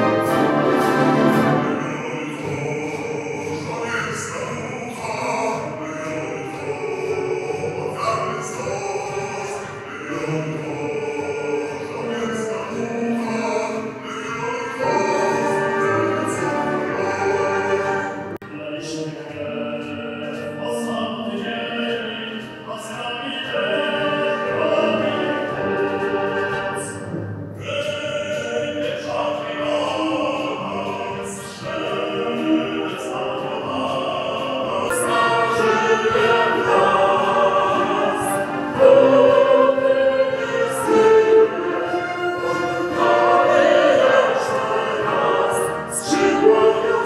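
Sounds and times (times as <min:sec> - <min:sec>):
concert band playing: 0:00.0 - 0:02.8
men singing: 0:00.0 - 0:27.0, 0:27.6 - 0:47.0
woman singing: 0:14.3 - 0:18.2, 0:34.9 - 0:41.4, 0:43.0 - 0:47.0.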